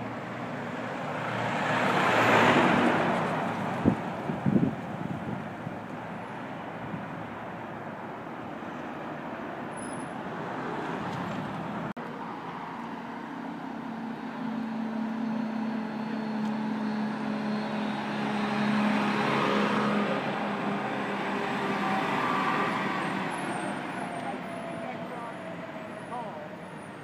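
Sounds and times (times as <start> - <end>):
street traffic: 0.0 - 27.0
garbage truck diesel engine: 11.4 - 27.0.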